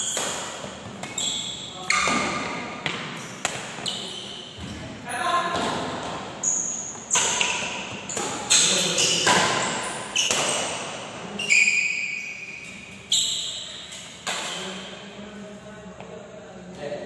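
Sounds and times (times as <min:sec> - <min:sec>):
rackets striking shuttlecock: 0:00.0 - 0:01.3, 0:01.9 - 0:04.0, 0:06.9 - 0:11.0, 0:13.9 - 0:14.8.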